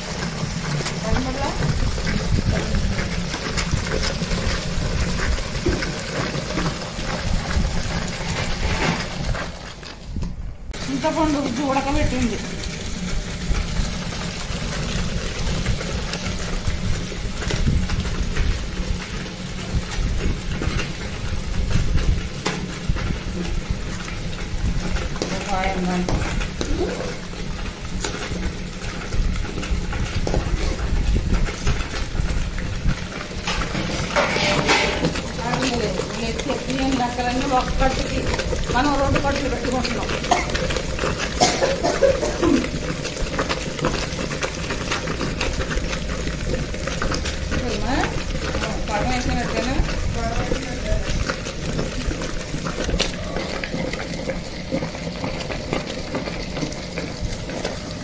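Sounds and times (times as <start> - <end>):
electric wet grinder running: 0.0 - 58.0
spoon scraping in a pot: 33.5 - 35.3.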